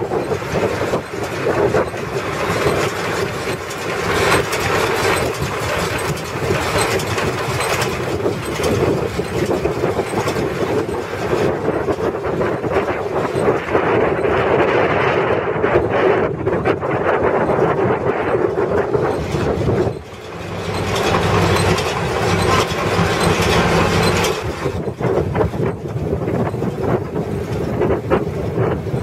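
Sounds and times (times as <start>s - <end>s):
baler mechanical clatter: 0.0s - 29.0s
tractor engine running: 0.0s - 29.0s.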